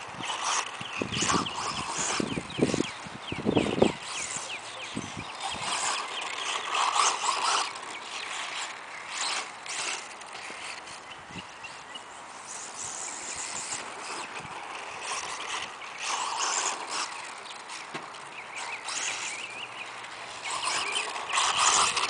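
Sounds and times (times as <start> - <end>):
rc car motor and tyres on dirt: 0.0 - 22.0.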